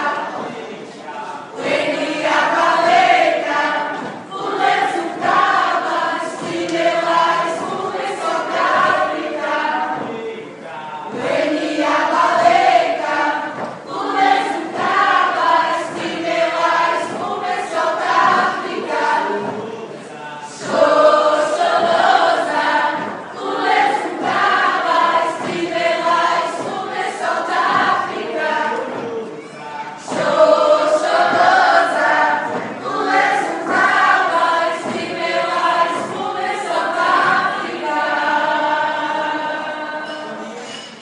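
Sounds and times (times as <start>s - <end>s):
mixed choir singing: 0.0s - 41.0s.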